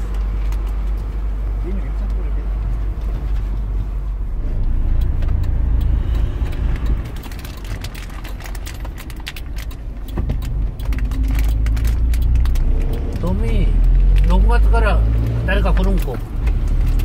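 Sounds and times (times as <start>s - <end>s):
vehicle engine and road rumble: 0.0s - 17.0s
light clicks and rattles: 6.1s - 14.3s.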